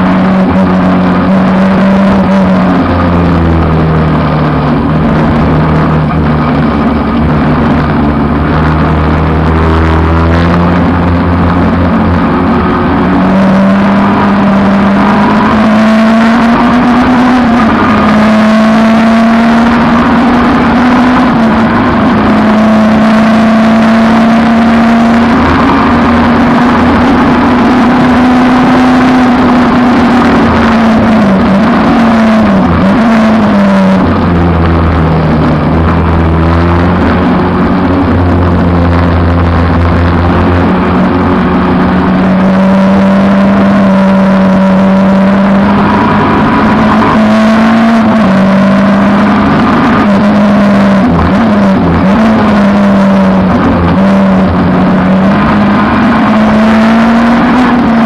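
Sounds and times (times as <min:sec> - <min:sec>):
race car engine running hard: 0:00.0 - 0:58.0.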